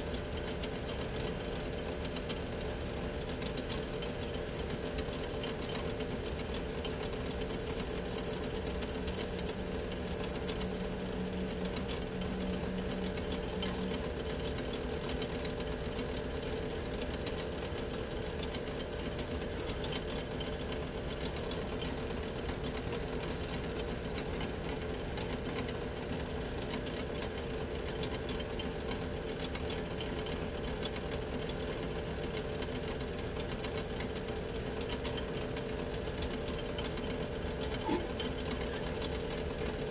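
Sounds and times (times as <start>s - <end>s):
metal lathe running: 8.5s - 14.7s, 36.8s - 39.9s
low hum tone: 37.6s - 39.9s.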